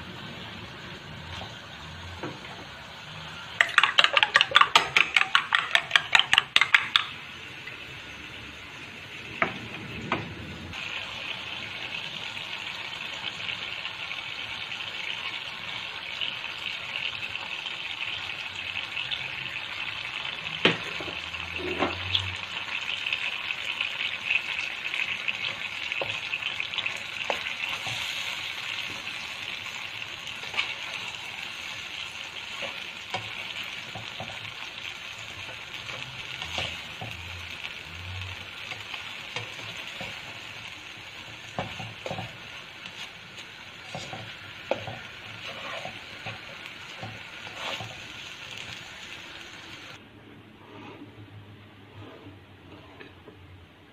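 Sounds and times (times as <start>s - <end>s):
food sizzling in a wok: 0.0s - 50.0s
spatula knocking against pan: 3.6s - 7.1s.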